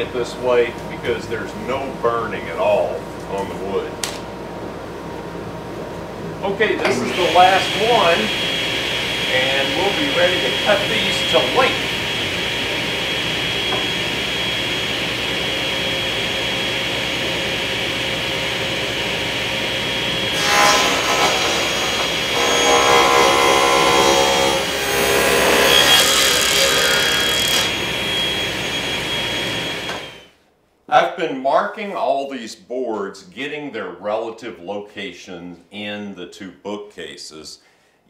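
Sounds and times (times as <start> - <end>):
table saw whining: 6.4 - 30.4
saw ripping wood panel: 20.3 - 27.9.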